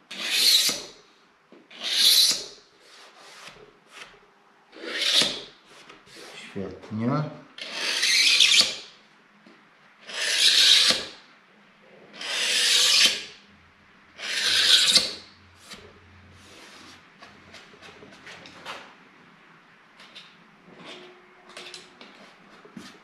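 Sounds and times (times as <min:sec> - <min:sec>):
hand file scraping board: 0:00.1 - 0:00.9, 0:01.7 - 0:04.2, 0:04.8 - 0:06.5, 0:07.6 - 0:08.8, 0:10.0 - 0:11.1, 0:12.2 - 0:13.3, 0:14.2 - 0:17.0.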